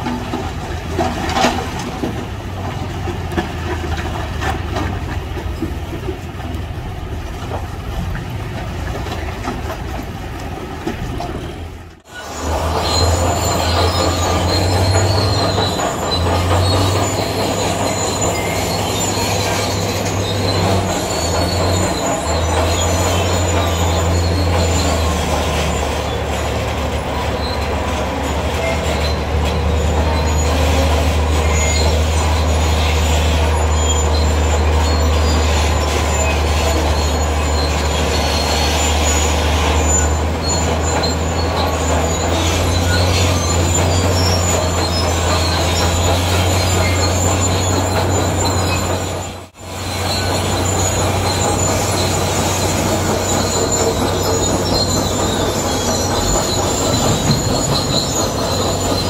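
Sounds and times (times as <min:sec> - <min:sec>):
bulldozer diesel engine drone: 0:00.0 - 0:59.0
metallic squeal of steel tracks: 0:00.0 - 0:59.0.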